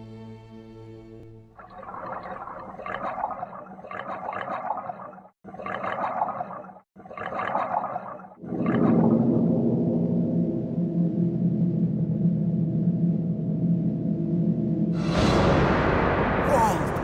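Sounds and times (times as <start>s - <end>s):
music: 0.0s - 1.6s, 9.3s - 17.0s
air bubbling underwater: 1.5s - 9.9s.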